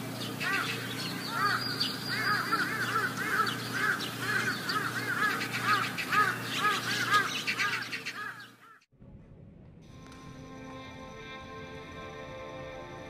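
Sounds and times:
many birds calling: 0:00.0 - 0:08.9
low steady hum: 0:09.0 - 0:13.0.

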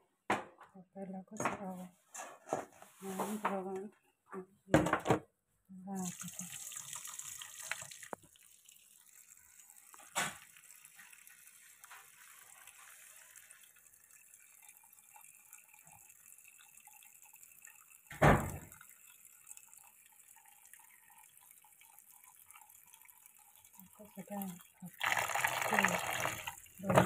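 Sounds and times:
water trickling and dripping: 0:05.9 - 0:27.0.

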